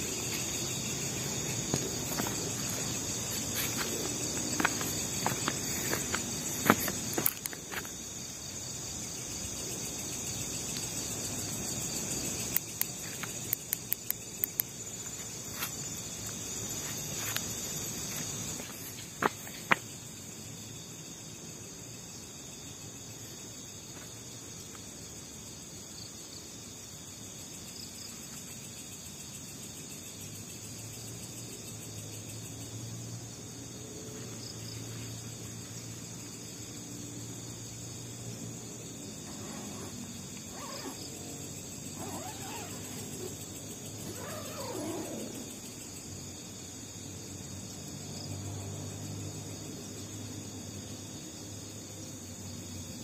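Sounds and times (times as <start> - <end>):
night insect chorus: 0.0 - 53.0
wavering animal calls: 42.0 - 43.4, 44.0 - 45.6.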